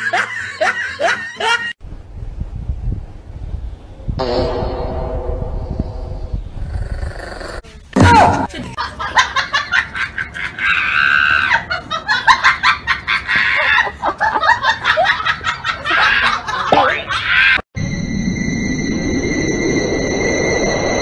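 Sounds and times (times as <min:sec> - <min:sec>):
people laughing and shrieking: 0:08.4 - 0:17.6.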